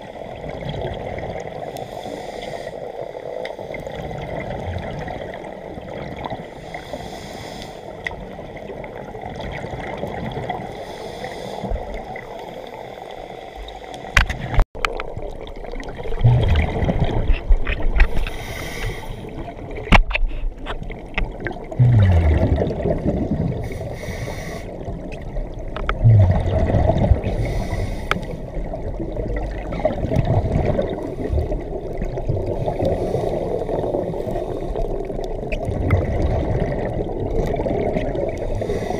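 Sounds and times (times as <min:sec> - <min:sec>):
exhaled bubbles gushing: 0:00.0 - 0:01.6, 0:03.8 - 0:06.5, 0:08.1 - 0:10.7, 0:14.4 - 0:18.3, 0:20.6 - 0:24.0, 0:24.7 - 0:38.9
steady water noise: 0:00.0 - 0:38.9
regulator inhale hiss: 0:01.7 - 0:03.8, 0:06.6 - 0:08.0, 0:10.7 - 0:14.1, 0:18.0 - 0:19.4, 0:23.5 - 0:24.9, 0:27.2 - 0:28.5, 0:32.8 - 0:35.1, 0:38.5 - 0:38.9.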